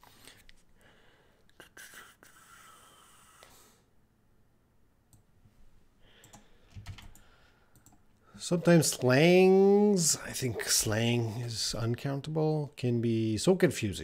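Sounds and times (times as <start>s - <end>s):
computer mouse and keyboard clicking: 6.2s - 8.0s.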